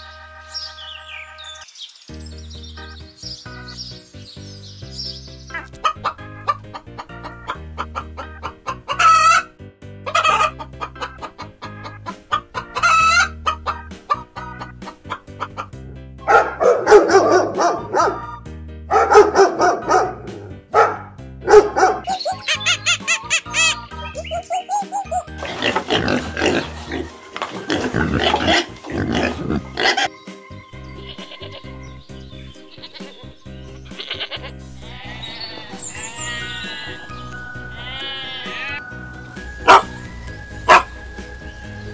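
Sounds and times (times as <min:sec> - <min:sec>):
light background music: 0:00.0 - 0:41.9
chickens clucking and crowing: 0:05.8 - 0:09.5, 0:10.1 - 0:15.8.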